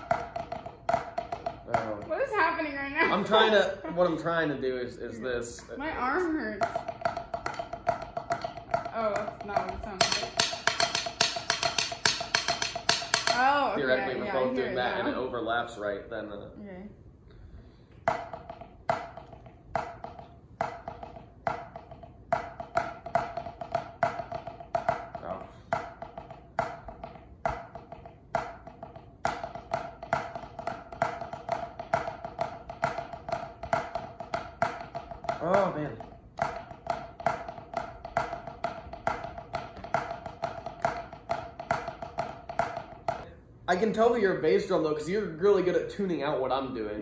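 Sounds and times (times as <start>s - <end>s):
drumsticks tapping practice pad: 0.0s - 4.7s, 5.6s - 14.9s, 17.9s - 46.1s
drumsticks on practice pad: 6.1s - 14.7s.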